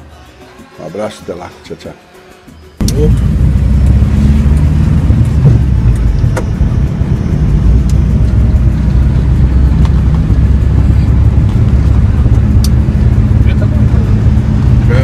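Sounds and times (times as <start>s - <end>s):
road noise: 2.7s - 15.0s
sharp clicks: 2.8s - 3.2s, 11.4s - 12.8s
engine droning at road speed: 2.8s - 15.0s.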